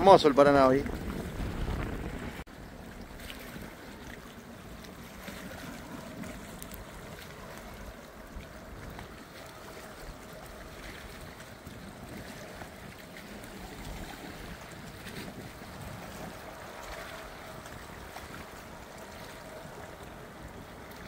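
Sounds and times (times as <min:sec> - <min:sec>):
river water: 0:00.0 - 0:21.0
wind: 0:00.0 - 0:21.0.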